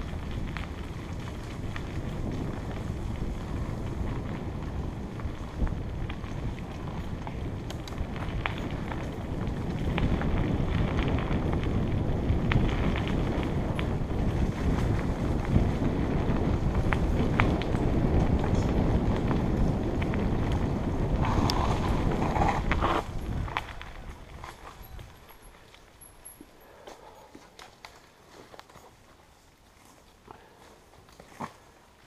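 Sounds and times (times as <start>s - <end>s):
wind buffeting microphone: 0.0s - 25.6s
bike rattling and knocking: 0.0s - 26.4s
bike tyres rumbling on dirt: 0.0s - 32.0s.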